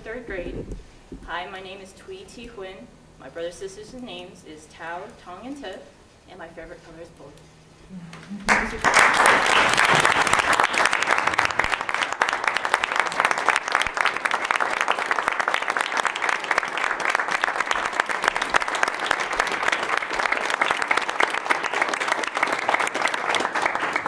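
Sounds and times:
crowd applauding: 8.4 - 24.0.

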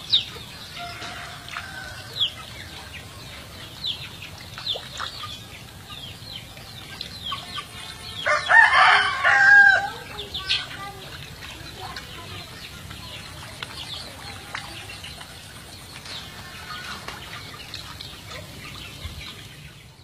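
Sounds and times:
rooster crowing: 0.8 - 2.2, 8.2 - 10.0.

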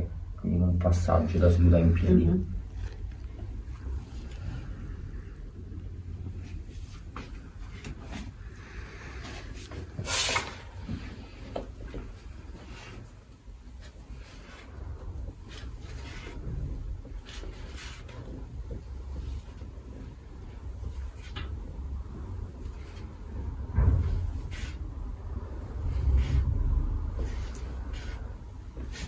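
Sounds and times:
rustling of cloth: 2.6 - 29.0.

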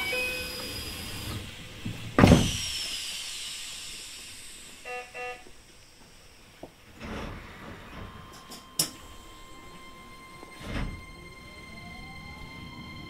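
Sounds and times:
train thump: 0.0 - 3.0, 10.4 - 11.2
air hiss: 0.0 - 6.6.

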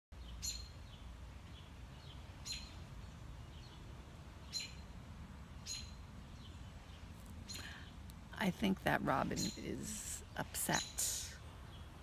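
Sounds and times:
robin alarm calls: 0.3 - 1.0, 1.6 - 2.9, 4.4 - 5.0, 5.6 - 8.0, 9.2 - 11.1
faint bird chirps: 5.6 - 8.0.

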